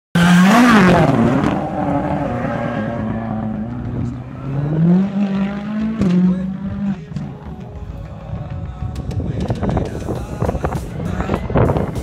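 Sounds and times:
race car engine revving: 0.2s - 7.6s.

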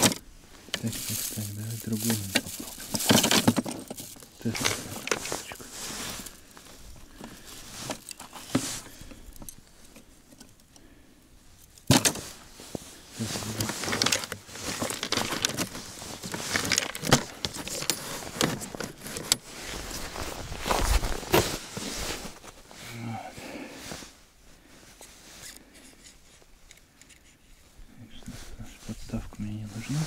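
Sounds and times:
plastic gear clicking and rattling: 0.0s - 5.3s, 13.6s - 19.4s
jacket rustling: 0.0s - 10.0s, 12.1s - 22.9s.

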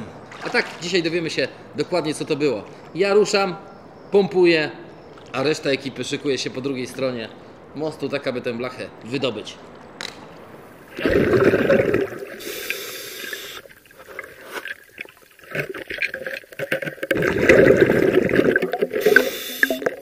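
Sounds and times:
exhaled air bubbles underwater: 10.9s - 20.0s
diver breathing in hiss: 12.3s - 13.7s, 19.0s - 19.8s.

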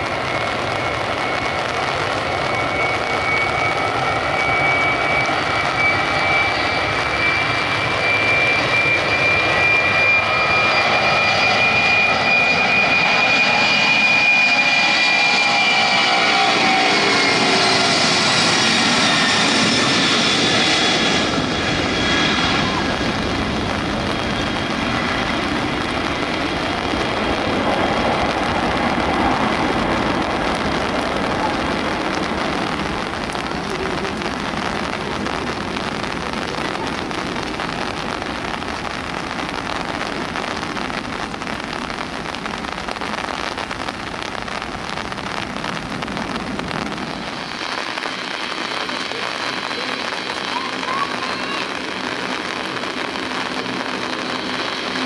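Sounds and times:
jet airliner engine roar: 0.0s - 55.0s
heavy rain hissing: 16.2s - 55.0s.

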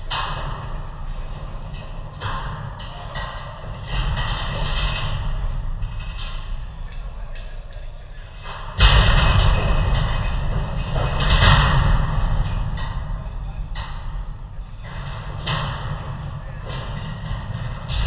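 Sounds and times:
low rumble: 0.0s - 18.0s
players' voices: 6.6s - 8.5s.

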